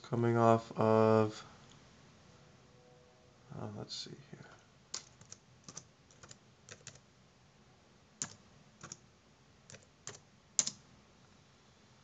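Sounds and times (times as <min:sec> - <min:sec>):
quiet keyboard keystrokes: 0:04.9 - 0:07.0, 0:08.2 - 0:09.0, 0:09.7 - 0:10.8.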